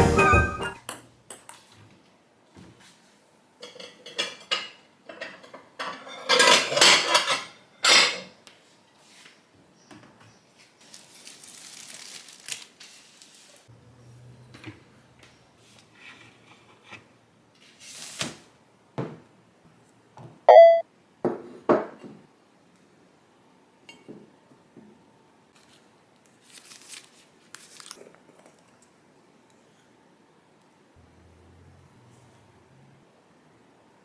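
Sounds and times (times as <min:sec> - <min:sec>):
kitchen items knocking and rustling: 0:03.6 - 0:08.4
short ringing beep: 0:20.5 - 0:20.8.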